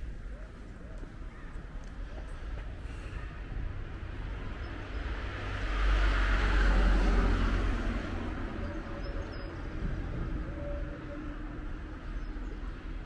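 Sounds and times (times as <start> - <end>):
vehicle passing: 4.8 - 8.8.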